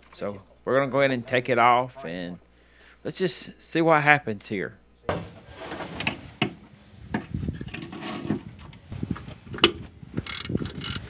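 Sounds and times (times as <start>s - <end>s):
ratchet clicks: 10.2s - 11.0s
wrench clinking on metal: 10.3s - 11.0s.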